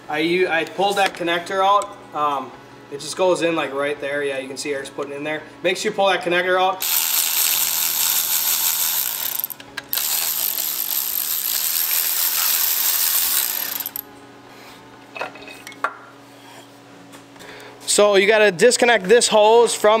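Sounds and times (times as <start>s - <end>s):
air tool hissing: 6.8s - 14.0s.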